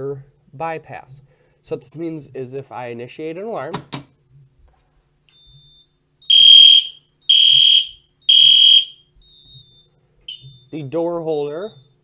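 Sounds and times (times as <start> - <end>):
fire alarm beeps: 5.3 - 10.9, 11.6 - 12.0.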